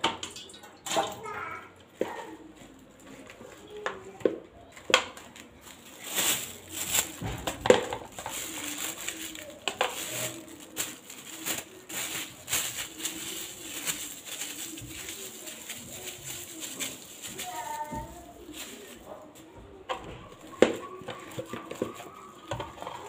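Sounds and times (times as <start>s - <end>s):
plastic spoon scraping a pot: 20.6s - 23.0s.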